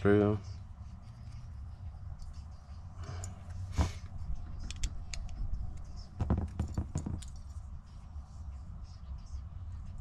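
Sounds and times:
steady low hum: 0:00.0 - 0:10.0
metal bracket clicking and rattling: 0:04.6 - 0:07.5.

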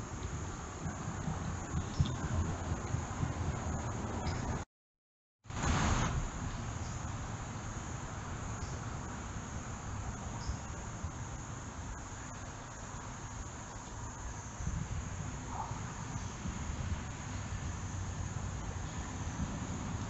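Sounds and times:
crickets droning: 0:00.0 - 0:04.6, 0:05.6 - 0:20.0
background hiss: 0:05.5 - 0:20.0.

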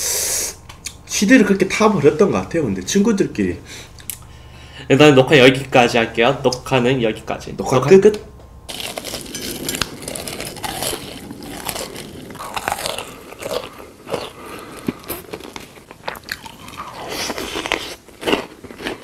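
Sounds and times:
sharp crackles: 0:08.7 - 0:16.3
crunchy chewing: 0:08.7 - 0:19.0.

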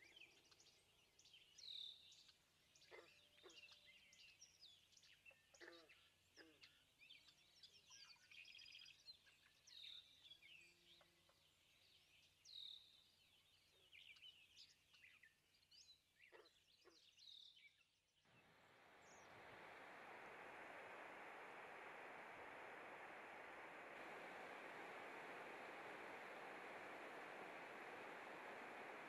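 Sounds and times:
faint bird chirps: 0:00.0 - 0:29.0.

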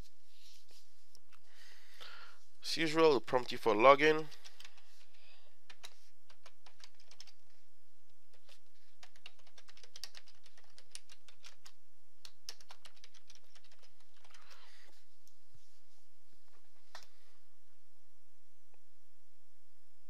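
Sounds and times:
keyboard typing clicks: 0:05.7 - 0:07.4, 0:08.3 - 0:14.7.

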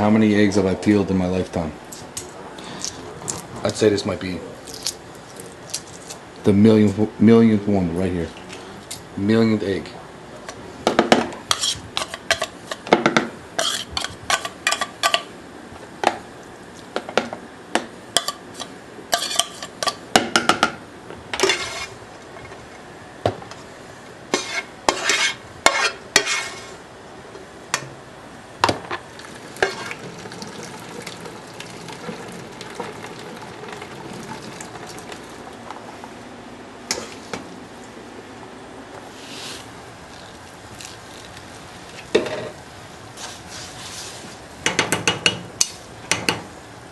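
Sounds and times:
steady hiss: 0:38.9 - 0:44.7.

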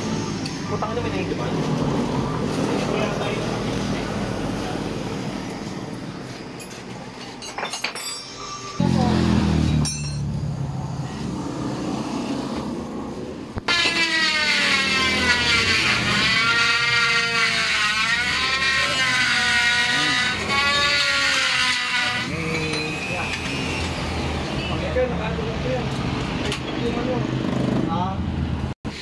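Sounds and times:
low engine-like drone: 0:08.3 - 0:13.7.

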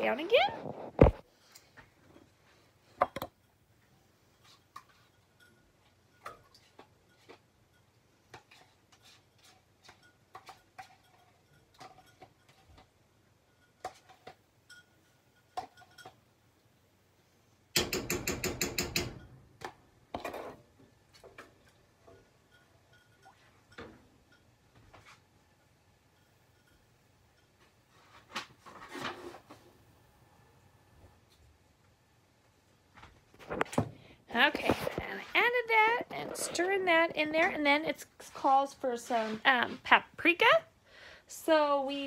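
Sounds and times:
spoon knocking and scraping dishes: 0:03.0 - 0:03.5, 0:04.4 - 0:16.3, 0:17.8 - 0:25.2.

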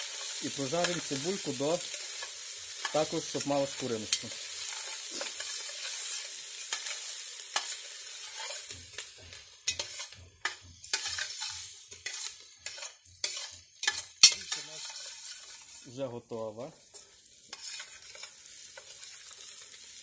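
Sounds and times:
onions sizzling in fat: 0:00.0 - 0:20.0
spoon scraping and knocking pot: 0:04.1 - 0:15.8, 0:16.9 - 0:19.1.

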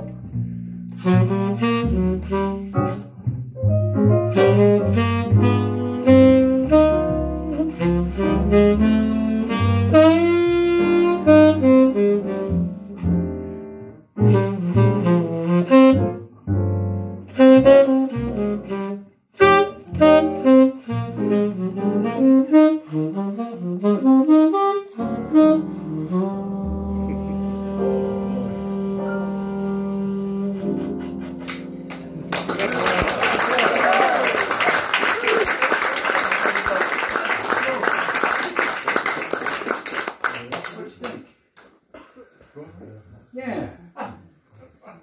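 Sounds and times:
tenor saxophone playing jazz: 0:00.0 - 0:31.8
piano: 0:00.0 - 0:40.2.

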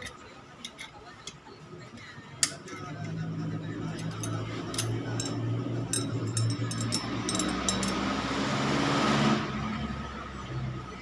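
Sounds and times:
light ringing clinks: 0:04.0 - 0:08.0.

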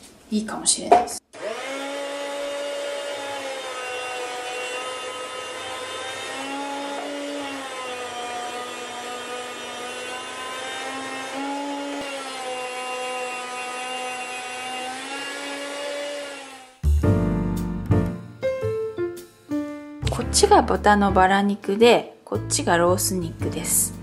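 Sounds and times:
electric food slicer whining: 0:01.3 - 0:16.8.

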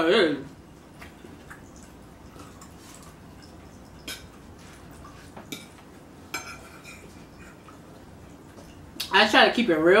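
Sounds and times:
fork clinking on a plate: 0:05.5 - 0:07.2.

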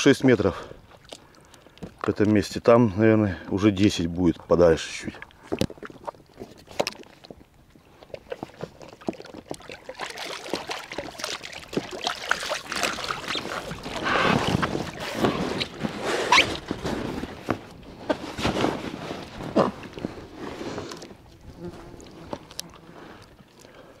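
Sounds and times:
water splashing and dripping: 0:00.8 - 0:02.4, 0:05.0 - 0:17.9.

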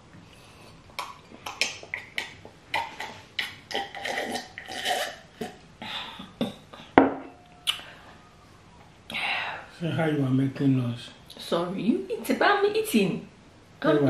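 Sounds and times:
woman gulping and slurping water: 0:01.0 - 0:05.6.

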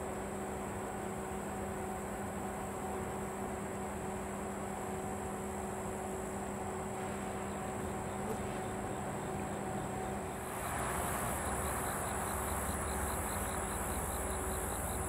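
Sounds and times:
insect high buzz: 0:05.2 - 0:15.0
insect pulsed chirp: 0:07.2 - 0:15.0.

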